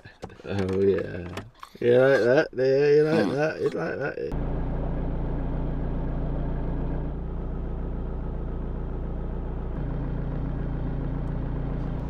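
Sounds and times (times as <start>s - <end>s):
car engine and road drone: 3.2s - 12.0s.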